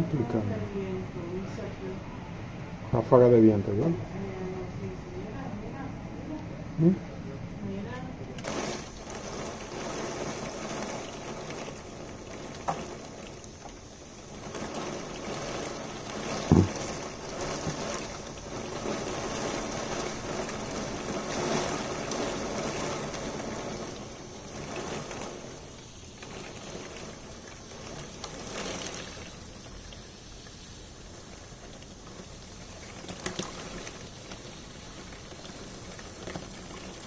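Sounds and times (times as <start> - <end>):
rain beating on window: 7.6 - 37.0.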